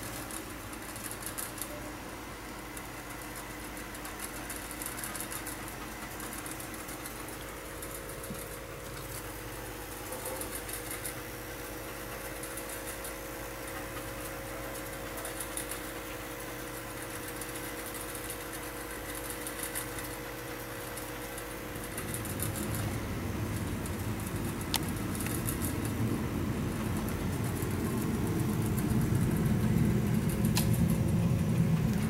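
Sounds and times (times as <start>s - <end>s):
steady mechanical hum: 0.0s - 32.0s
scratchy high ticks: 16.7s - 32.0s.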